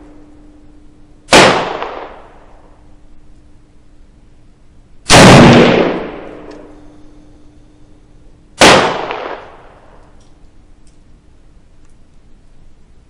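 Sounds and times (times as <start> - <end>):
rifle shots: 1.3 - 2.6, 5.1 - 6.8, 8.6 - 10.0.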